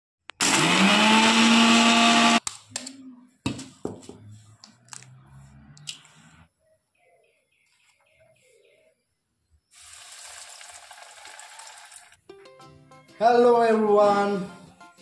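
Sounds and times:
mixer grinder motor whirring: 0:00.4 - 0:02.4.

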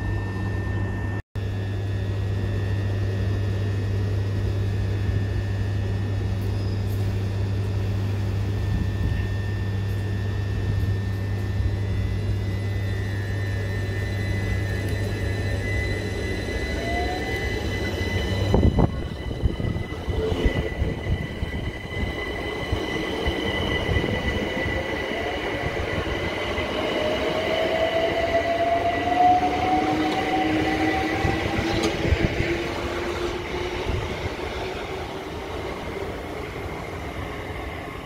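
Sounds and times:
electric train motors whining: 0:04.0 - 0:38.0
steady high tone: 0:09.0 - 0:38.0.

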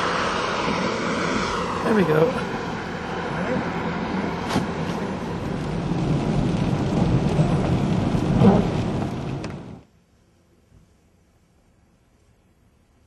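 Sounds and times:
tyres hissing on wet pavement: 0:00.0 - 0:09.8
car cabin rumble: 0:04.5 - 0:09.8.

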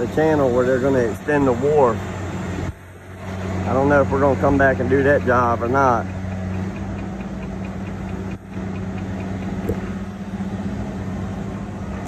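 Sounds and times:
engine idling: 0:00.0 - 0:12.0
faint regular ticking: 0:02.9 - 0:11.7.

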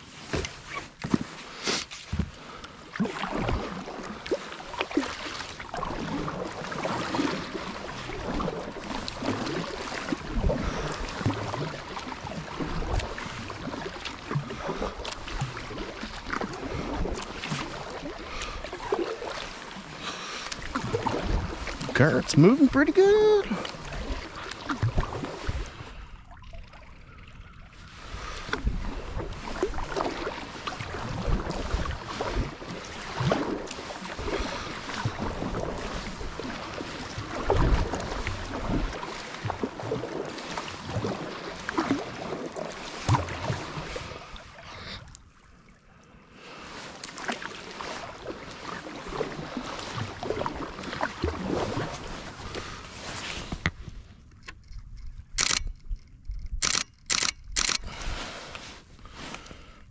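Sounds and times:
paddle splashing water: 0:00.0 - 0:59.9
camera shutter bursts: 0:56.6 - 0:57.8.

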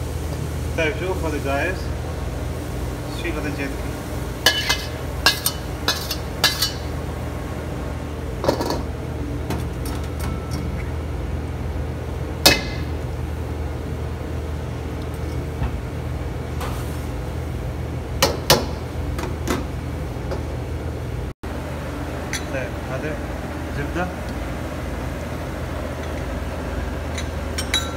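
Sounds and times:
steady low hum: 0:00.0 - 0:27.9
metal utensils clinking: 0:04.5 - 0:06.9, 0:27.1 - 0:27.9.

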